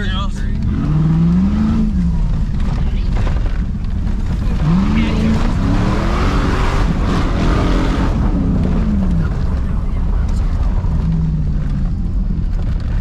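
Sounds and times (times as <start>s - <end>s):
heavy low rumble: 0.0s - 13.0s
truck engine revving: 0.0s - 13.0s.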